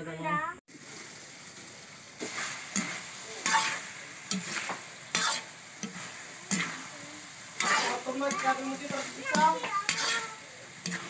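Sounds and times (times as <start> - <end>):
meat sizzling: 0.7 - 11.0
metal spatula scraping a wok: 2.2 - 11.0.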